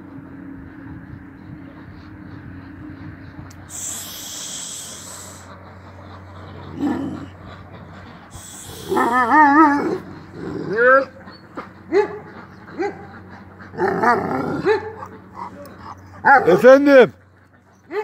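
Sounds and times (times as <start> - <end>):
dog whining and yipping: 8.9 - 10.1.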